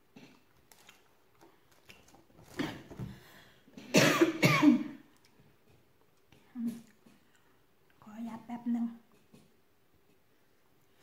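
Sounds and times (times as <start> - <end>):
woman coughing: 3.9 - 5.0.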